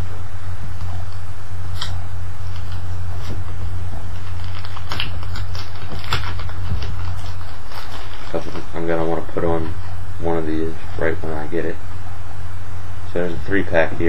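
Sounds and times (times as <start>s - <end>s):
low electrical hum: 0.0s - 14.0s
plastic packaging crinkling: 1.8s - 9.8s.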